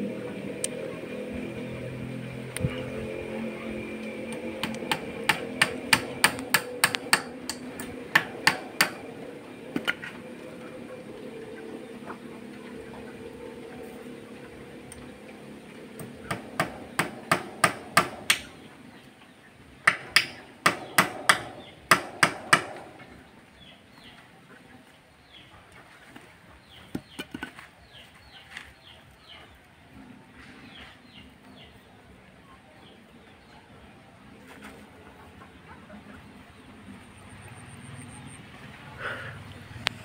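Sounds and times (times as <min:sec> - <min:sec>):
hand hammer striking: 0:04.3 - 0:09.0, 0:16.3 - 0:18.5, 0:19.8 - 0:22.8.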